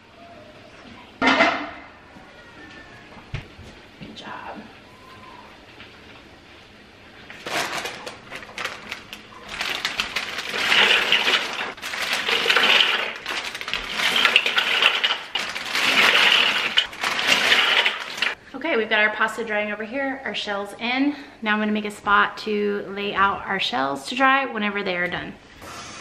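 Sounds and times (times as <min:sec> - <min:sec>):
plastic bag crinkling: 0:07.3 - 0:18.4
dry pasta rattling into a pot: 0:07.4 - 0:18.4.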